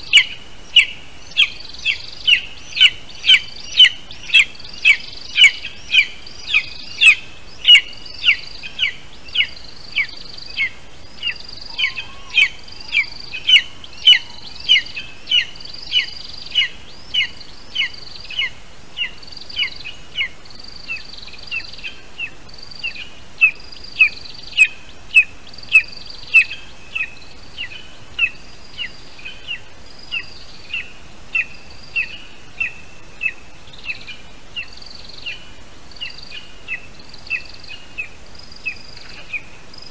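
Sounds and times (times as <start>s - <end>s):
eagle chick chirping: 0.0s - 17.9s.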